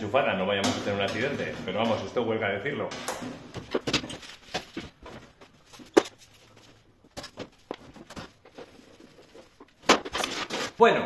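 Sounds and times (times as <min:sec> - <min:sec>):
hand tools and metal panels knocking: 0:00.5 - 0:02.2.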